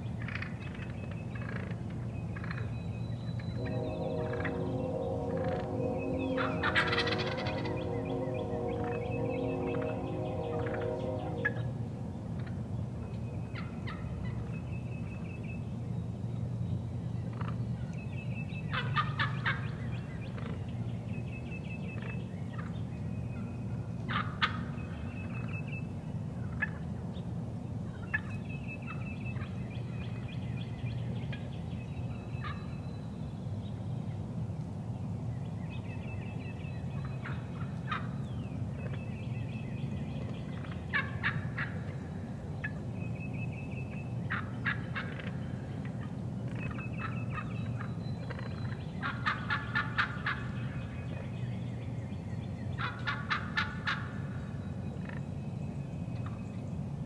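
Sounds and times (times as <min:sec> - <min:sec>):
low background hum: 0:00.0 - 0:57.0
turkeys gobbling: 0:06.4 - 0:07.7, 0:49.0 - 0:50.4, 0:52.8 - 0:54.1.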